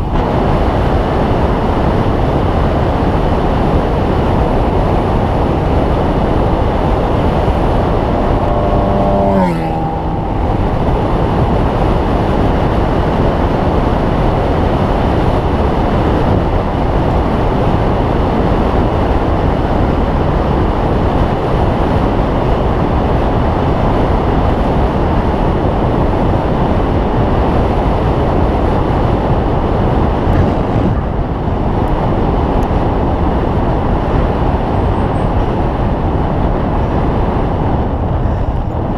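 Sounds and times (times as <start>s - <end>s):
road noise: 0.0s - 38.9s
wind rushing over microphone: 0.0s - 38.9s
falling tone: 6.6s - 12.4s.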